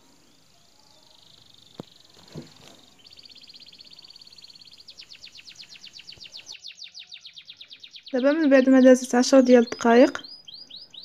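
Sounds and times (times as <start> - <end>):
bird trilling: 3.0 - 11.0.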